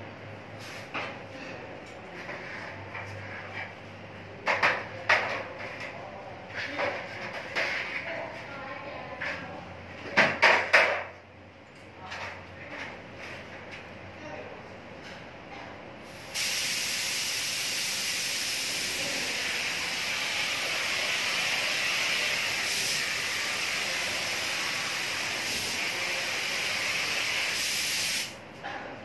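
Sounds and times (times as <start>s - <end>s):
paint spray gun hissing: 16.2s - 28.4s.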